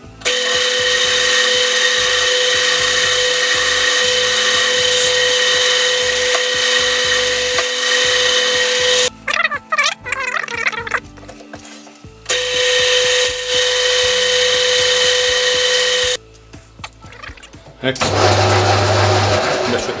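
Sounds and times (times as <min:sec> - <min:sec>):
metal lathe and grinder whining: 0:00.2 - 0:09.1, 0:12.3 - 0:16.2, 0:18.0 - 0:20.0.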